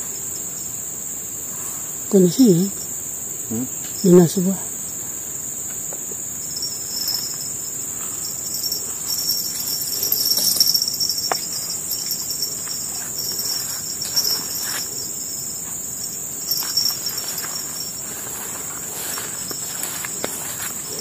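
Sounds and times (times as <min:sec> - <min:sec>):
insects chorus: 0:00.0 - 0:21.0
faint clicks and rustles: 0:05.8 - 0:21.0.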